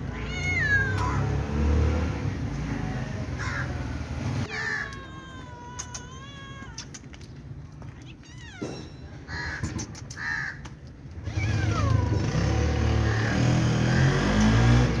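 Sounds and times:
cat meowing hoarsely: 0.0 - 1.4, 4.5 - 7.1, 11.2 - 12.3.

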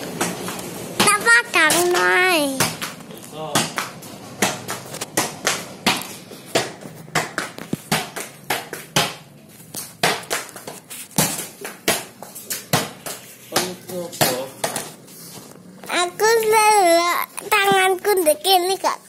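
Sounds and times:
ball thuds on concrete floor: 0.1 - 15.0.

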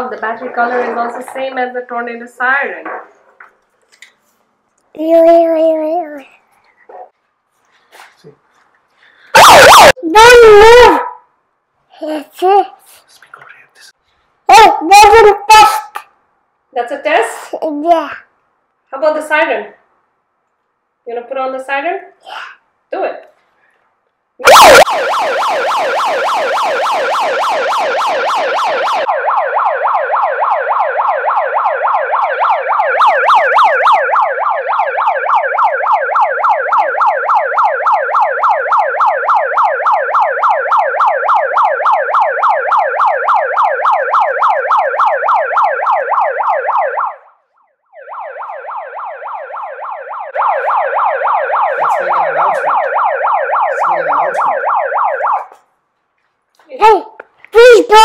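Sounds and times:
megaphone siren warbling: 9.3 - 11.2, 14.5 - 16.0, 24.4 - 55.6, 57.6 - 58.0.

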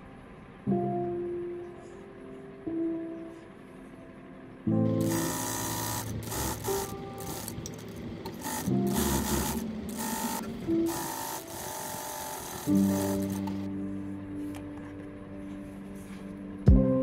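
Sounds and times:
faint background music: 0.0 - 17.0
sewing machine stitching: 4.9 - 13.7.

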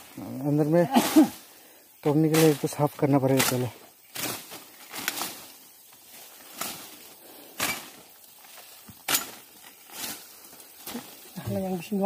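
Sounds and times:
machete slashing through undergrowth: 3.3 - 5.6, 6.4 - 7.0, 7.6 - 8.1.

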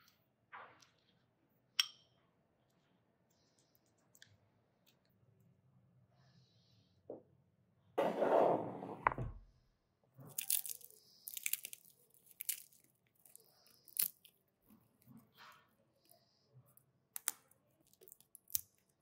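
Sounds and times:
baking tray scraping into oven: 8.0 - 9.3
walnuts crunching between fingers: 10.3 - 14.4, 17.2 - 18.9.

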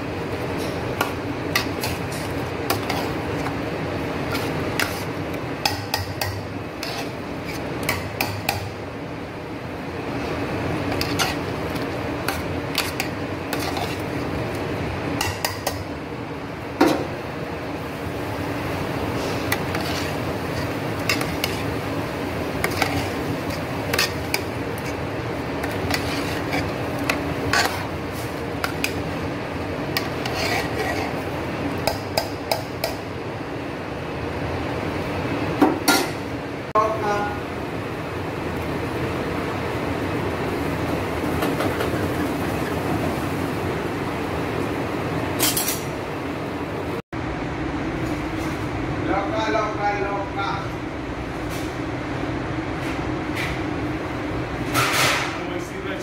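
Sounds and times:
steady hum: 0.0 - 41.2
metal spoon scraping a pot: 1.5 - 3.5, 4.2 - 8.6, 10.9 - 14.2, 19.2 - 21.7, 22.6 - 28.0, 30.0 - 31.2.

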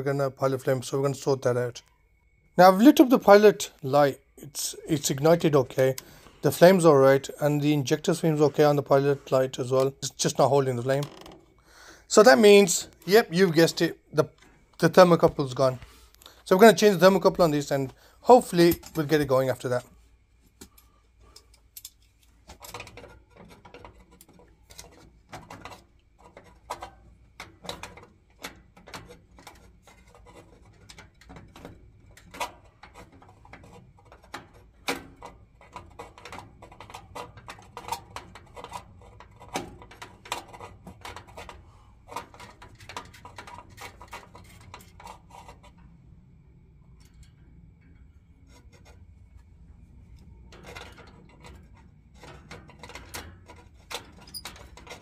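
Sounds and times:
low steady background: 0.0 - 55.0
metal tools clicking and clinking: 16.5 - 19.8, 21.3 - 24.0.

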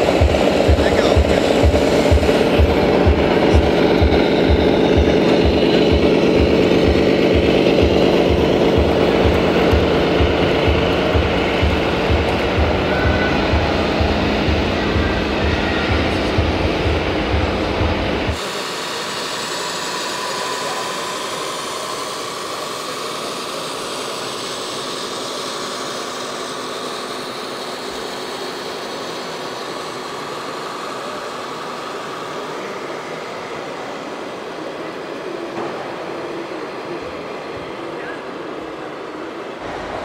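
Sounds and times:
music with heavy beat: 0.0 - 21.2
faint whining tones: 0.0 - 40.0
machine running: 0.0 - 40.0.

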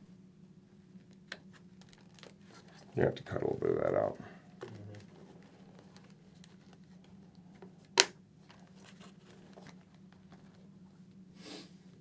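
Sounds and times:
hands handling helmet: 4.5 - 10.9.

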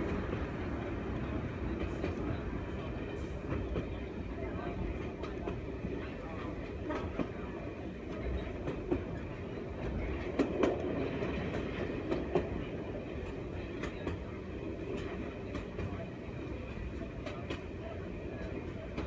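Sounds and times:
train rumble from inside carriage: 0.0 - 19.0.

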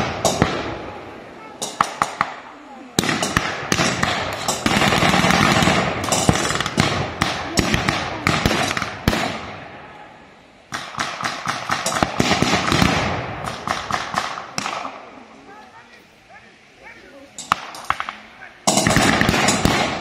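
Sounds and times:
blank gunfire cracks: 17.4 - 20.0.

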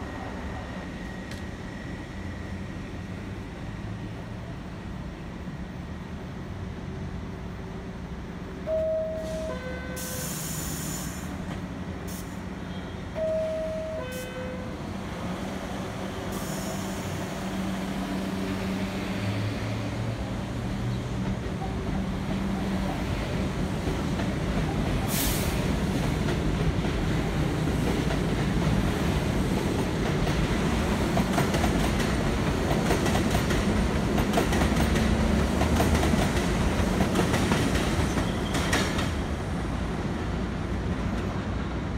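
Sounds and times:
two-note door chime: 8.7 - 9.8, 13.2 - 14.2
door air hiss: 10.0 - 11.4
train wheels rumbling and clattering: 11.1 - 12.4, 15.0 - 41.9.

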